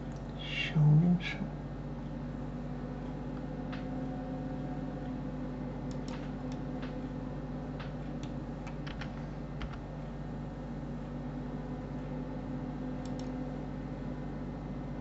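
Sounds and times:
steady low hum: 0.0s - 15.0s
keyboard and mouse clicks: 5.9s - 7.0s, 7.8s - 9.9s, 13.0s - 13.4s.

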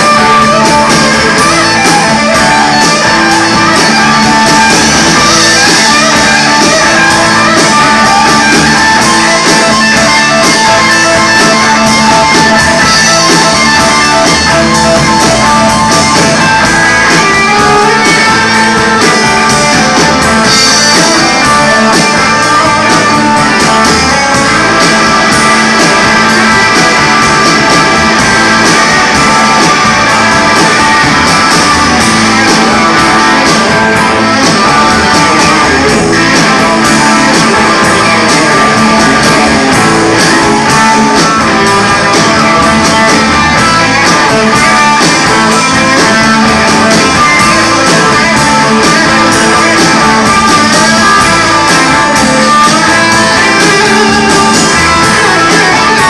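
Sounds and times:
live band with electric guitar: 0.0s - 56.0s.

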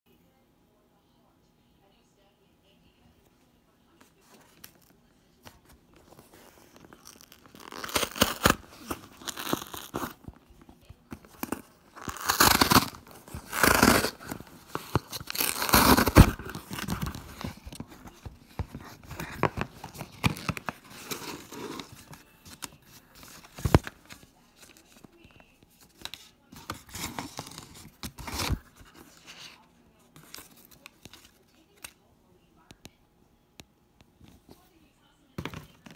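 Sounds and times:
cardboard box tearing open: 7.0s - 10.2s, 11.3s - 22.0s.

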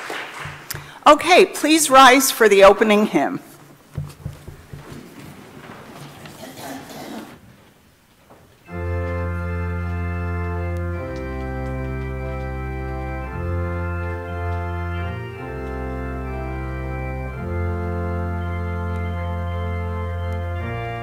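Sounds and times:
church organ playing hymn: 8.6s - 21.0s.

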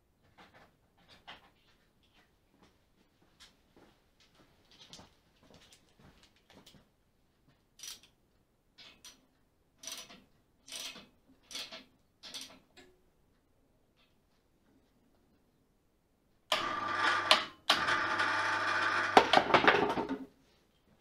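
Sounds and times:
ratchet spanner clicking: 9.8s - 12.6s.

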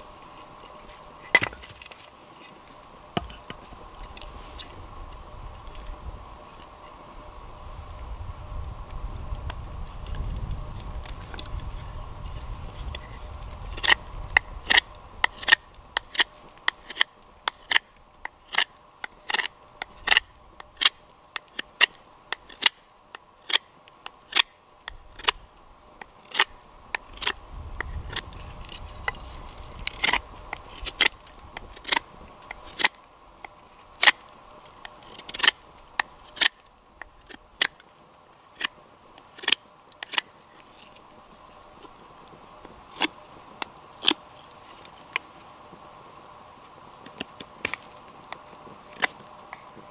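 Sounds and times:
knife shaving wood: 9.8s - 45.4s.

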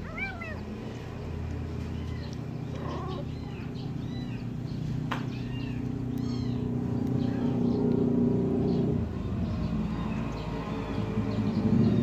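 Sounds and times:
kittens mewing: 0.0s - 0.9s, 1.6s - 4.6s, 5.3s - 7.8s.

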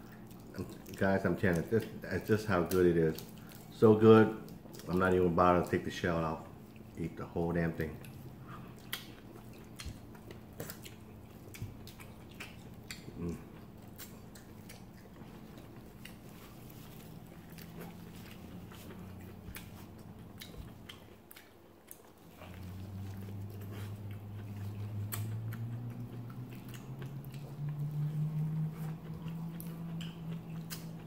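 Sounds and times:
chewing and biting food: 0.0s - 31.0s
small clicks and smacks: 8.8s - 23.6s, 24.4s - 28.1s, 28.8s - 31.0s.

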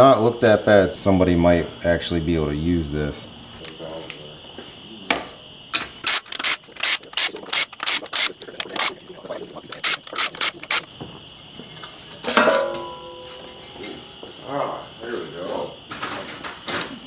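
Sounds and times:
impact driver bursts: 5.8s - 9.0s, 9.7s - 10.9s.

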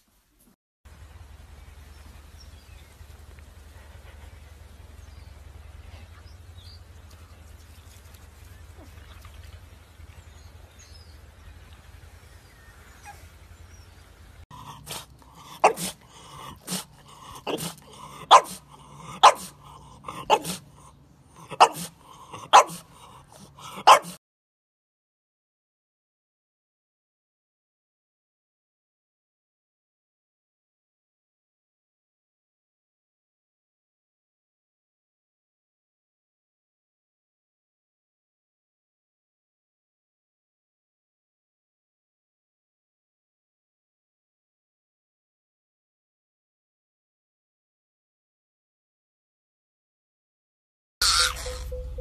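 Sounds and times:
faint low rumble: 0.9s - 23.6s, 51.0s - 52.0s
dog barking sharply: 14.8s - 16.0s, 16.6s - 20.6s, 21.5s - 22.9s, 23.7s - 24.2s.

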